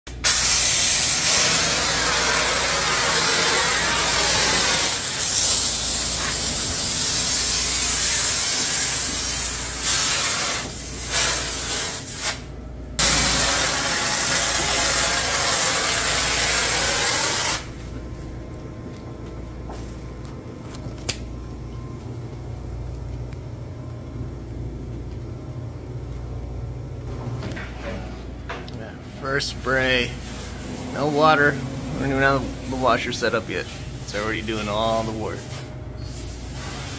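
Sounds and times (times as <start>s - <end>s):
foam sprayer hissing: 0.1s - 12.4s, 13.0s - 17.7s
low steady hum: 17.7s - 36.0s.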